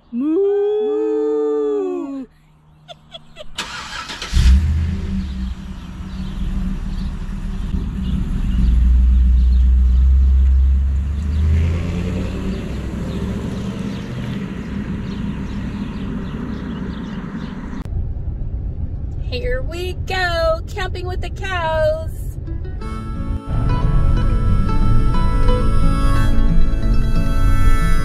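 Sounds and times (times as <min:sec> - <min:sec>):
vehicle engine starting and running: 0:03.0 - 0:20.2.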